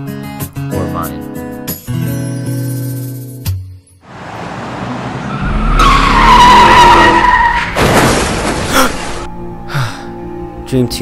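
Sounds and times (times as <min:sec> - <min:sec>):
car tyres screeching: 0:04.1 - 0:09.2
loud crash: 0:05.4 - 0:09.3.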